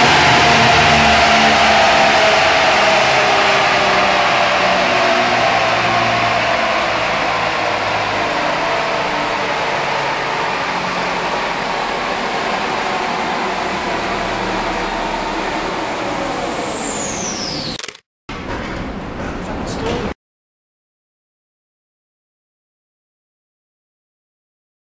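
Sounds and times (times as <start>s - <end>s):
high thin whine: 0.0s - 17.9s
engine rushing noise: 0.0s - 20.2s.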